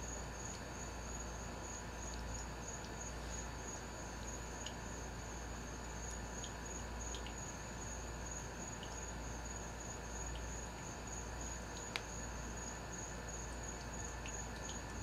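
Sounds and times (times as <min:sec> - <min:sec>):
crickets trilling: 0:00.0 - 0:15.0
faint wet clicks: 0:06.1 - 0:07.4, 0:11.8 - 0:12.1.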